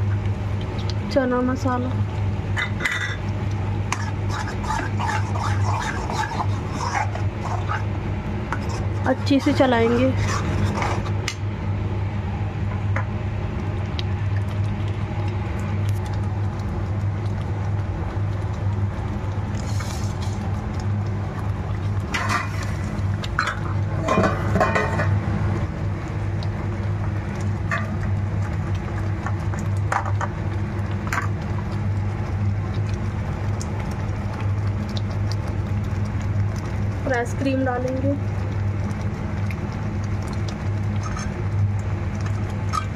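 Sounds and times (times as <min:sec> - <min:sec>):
steady low hum: 0:00.0 - 0:42.9
spoon scraping a pan: 0:03.9 - 0:07.8, 0:08.6 - 0:11.1
metal spoon stirring thick gravy: 0:03.9 - 0:07.9, 0:08.6 - 0:11.2.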